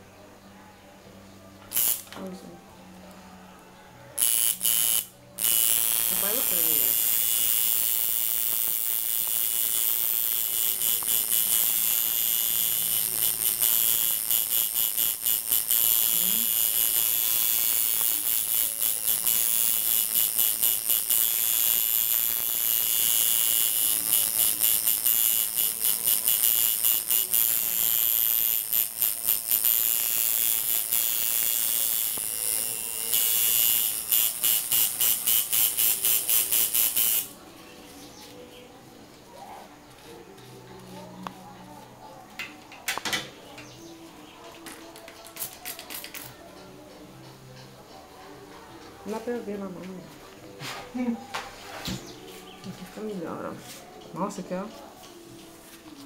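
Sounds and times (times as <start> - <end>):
tattoo machine buzzing: 1.7 - 2.2, 4.2 - 37.4.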